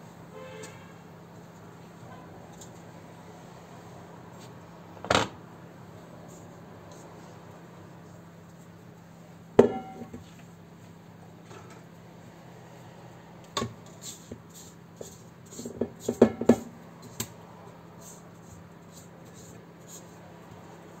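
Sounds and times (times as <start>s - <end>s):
faint steady hum: 0.0s - 12.2s
kitchen knocks and clatters: 9.6s - 10.4s, 15.6s - 16.7s.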